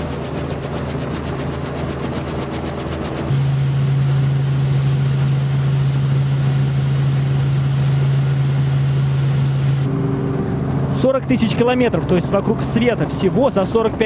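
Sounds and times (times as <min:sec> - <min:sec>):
helicopter engine and rotor drone: 0:00.0 - 0:14.0.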